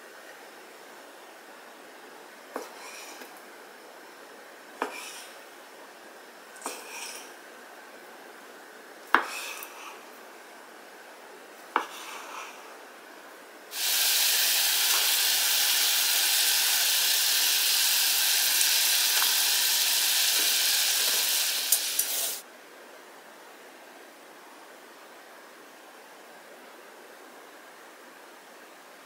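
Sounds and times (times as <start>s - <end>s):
sauce bubbling and sizzling: 13.7s - 22.4s.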